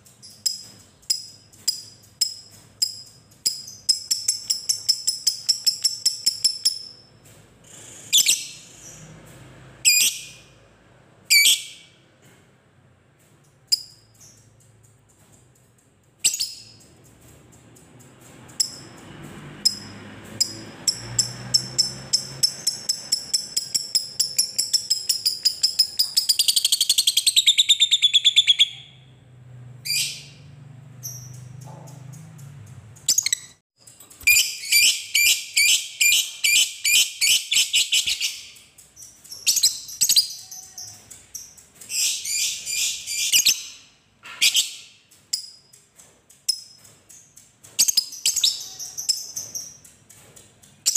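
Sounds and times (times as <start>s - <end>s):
lovebird chattering song: 47.8s - 49.9s.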